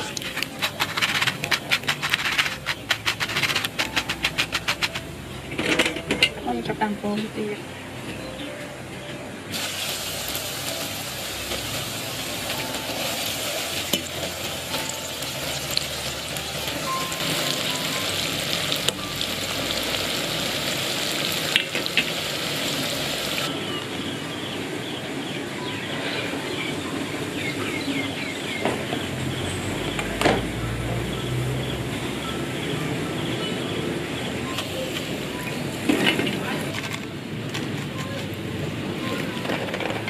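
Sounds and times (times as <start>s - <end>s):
pasta deep-frying in hot oil: 9.5s - 24.4s.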